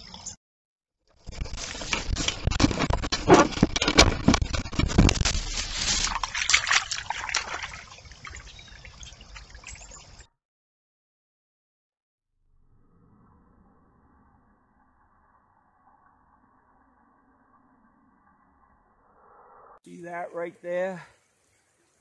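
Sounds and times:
water splashing in a brook: 3.5 - 10.2.

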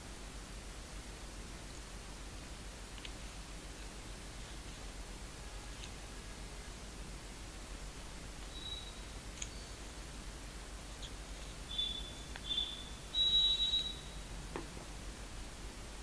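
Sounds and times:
low background hiss: 0.0 - 16.0
high-pitched chirps: 8.5 - 9.7, 11.7 - 14.2.

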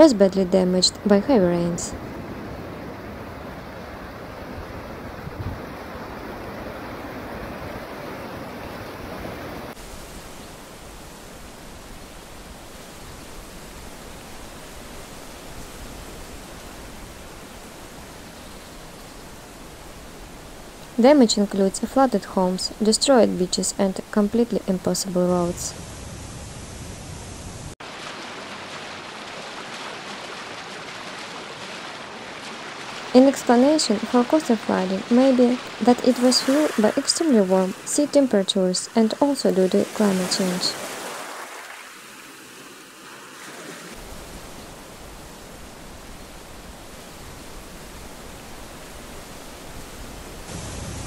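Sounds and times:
rushing floodwater: 0.0 - 25.9, 27.7 - 51.0
wind on microphone: 2.0 - 8.0
steady hiss: 9.7 - 21.0
surf breaking on beach: 27.6 - 38.3, 39.4 - 47.7, 49.6 - 51.0.

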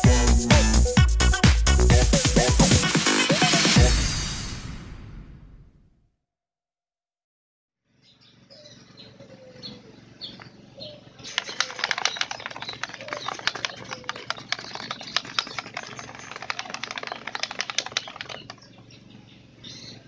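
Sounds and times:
faint birds chirping: 7.9 - 20.0
sharp clicks and crackles: 11.3 - 18.7.

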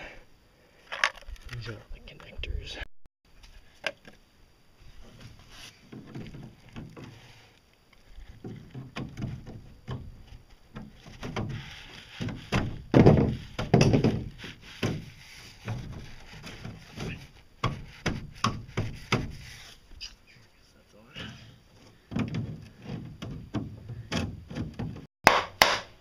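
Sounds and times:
plastic pipe connectors knocking: 8.4 - 19.4.

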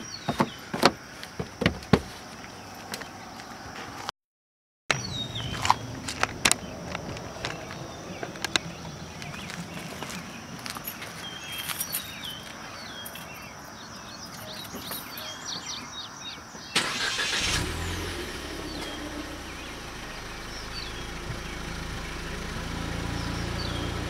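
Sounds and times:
birds chirping faintly: 0.0 - 4.1, 4.9 - 17.5, 18.1 - 24.0
car engine cranking and starting: 16.8 - 24.0
car engine idling: 16.8 - 24.0.

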